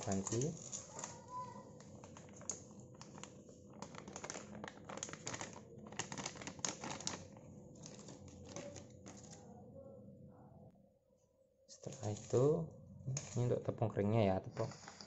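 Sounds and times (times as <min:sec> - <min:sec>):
plastic packet crinkling: 0:00.0 - 0:09.5.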